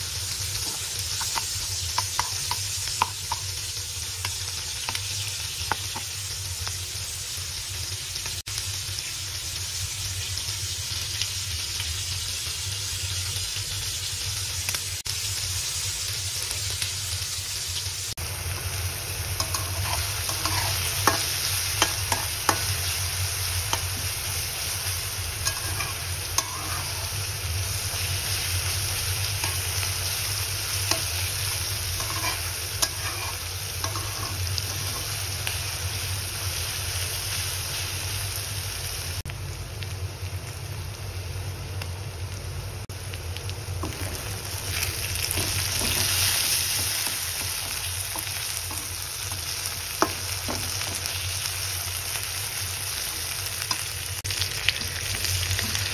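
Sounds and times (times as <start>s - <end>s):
shrimp sizzling in oil: 0.0s - 55.9s
metal spatula clicks and scrapes: 19.4s - 22.7s, 25.4s - 27.1s, 32.0s - 35.1s.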